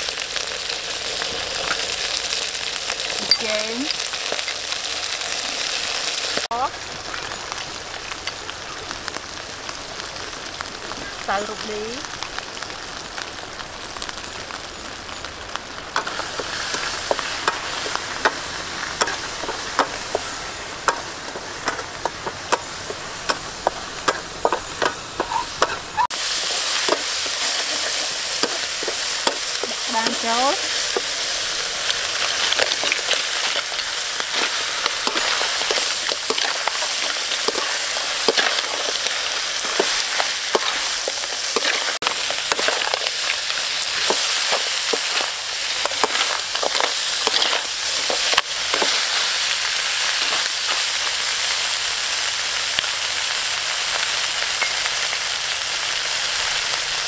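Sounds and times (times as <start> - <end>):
curry paste sizzling in a wok: 0.0 - 57.0
metal spoon scraping a wok: 44.0 - 49.2.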